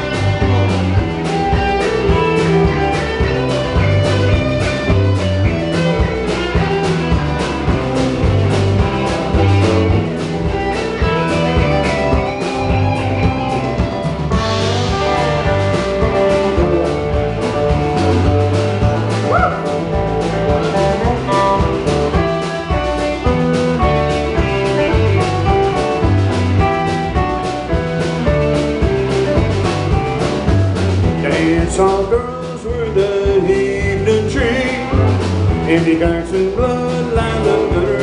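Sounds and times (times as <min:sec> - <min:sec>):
live band playing guitars: 0:00.0 - 0:38.0
person singing: 0:31.1 - 0:38.0.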